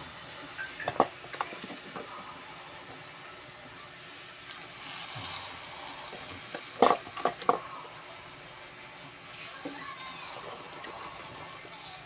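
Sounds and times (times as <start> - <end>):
vegetables sizzling in saucepan: 0.0 - 12.0
sharp clatters at pot: 0.8 - 2.1, 6.1 - 7.7.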